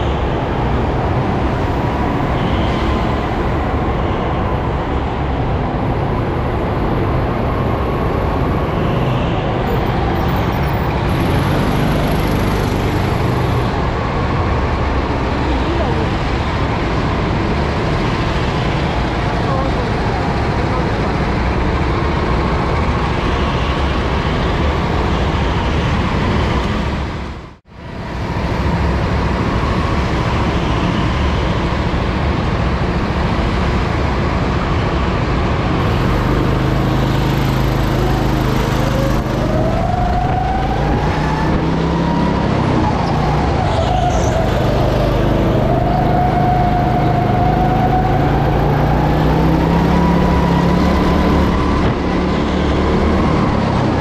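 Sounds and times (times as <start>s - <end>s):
go-kart engine racing: 0.0s - 27.3s, 28.0s - 54.0s.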